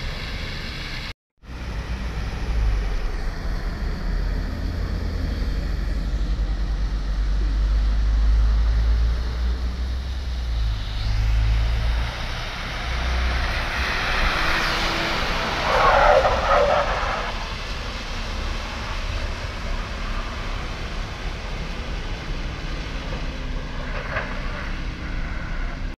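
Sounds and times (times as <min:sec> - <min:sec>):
bus passing through water spray: 0:11.3 - 0:25.7.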